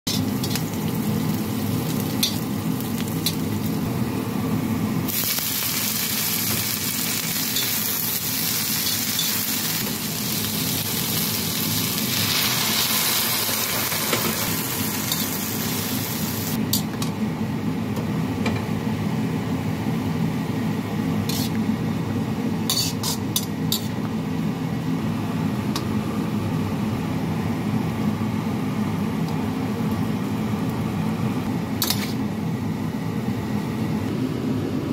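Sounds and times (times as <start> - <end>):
vegetables sizzling in a wok: 0.1 - 16.6, 21.0 - 21.7, 22.4 - 24.0, 31.7 - 32.4
spatula scraping a wok: 21.2 - 21.6, 22.7 - 23.9, 31.8 - 32.2.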